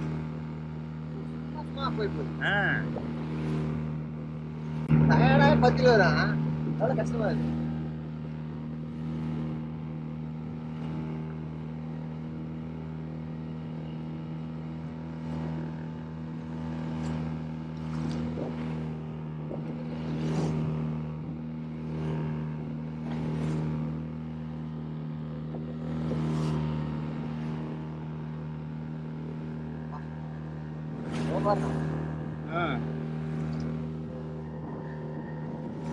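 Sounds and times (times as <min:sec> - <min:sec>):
outboard motor droning: 0:00.0 - 0:35.9.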